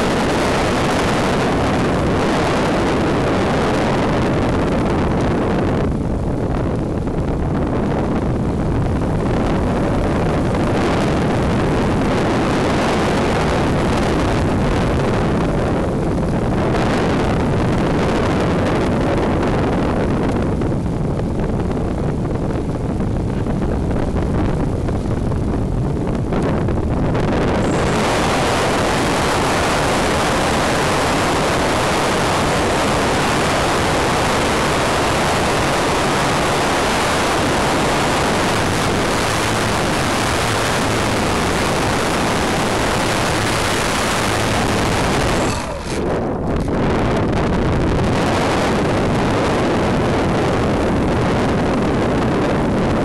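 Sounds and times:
rushing airflow: 0:00.0 - 0:53.0
model plane motor noise: 0:27.3 - 0:47.3.

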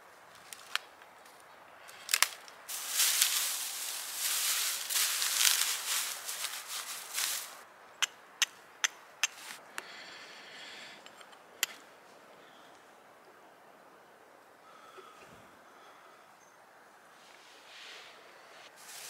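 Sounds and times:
dry grass crackling rustle: 0:00.3 - 0:07.6, 0:09.3 - 0:09.6, 0:18.7 - 0:19.0.

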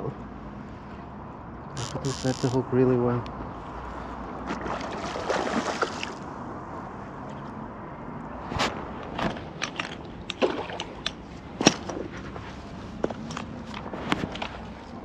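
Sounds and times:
fish splashing at surface: 0:04.5 - 0:06.2.

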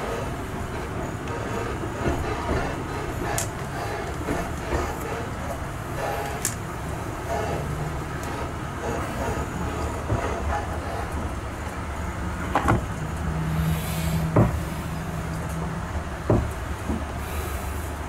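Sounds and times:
vehicle rumble from inside: 0:11.9 - 0:18.0.

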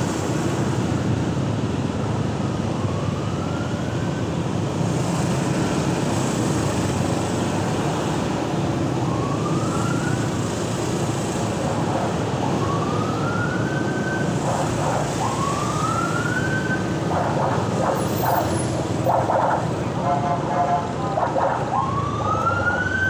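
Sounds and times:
surrounding traffic: 0:00.0 - 0:23.0
siren whooping: 0:11.5 - 0:23.0.

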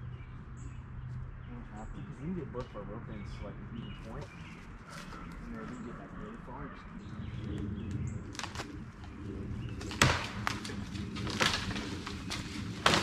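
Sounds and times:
dry wood cracking: 0:07.4 - 0:13.0.

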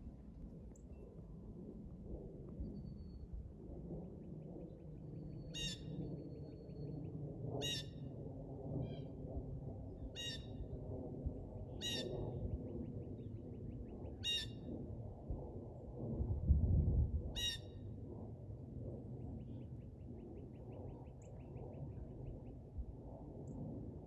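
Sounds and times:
jet airliner rumble overhead: 0:00.0 - 0:24.0.

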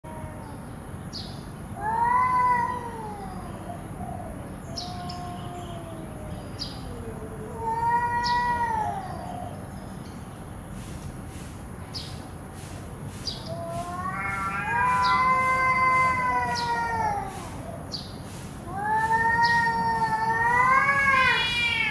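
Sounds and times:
cats yowling: 0:00.0 - 0:00.6, 0:01.8 - 0:09.6, 0:13.5 - 0:18.0, 0:18.6 - 0:21.9.

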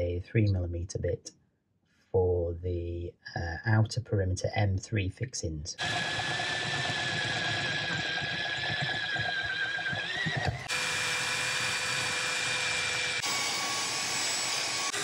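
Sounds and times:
power drill whining: 0:05.8 - 0:15.0.

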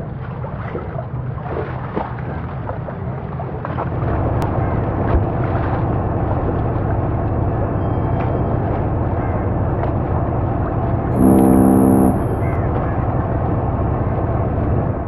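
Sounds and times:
boat motor rumbling: 0:10.8 - 0:12.8.

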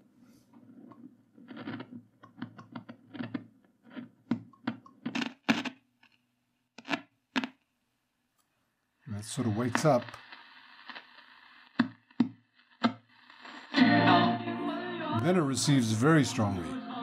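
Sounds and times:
radio crackling and popping: 0:00.6 - 0:07.7, 0:09.0 - 0:14.4.

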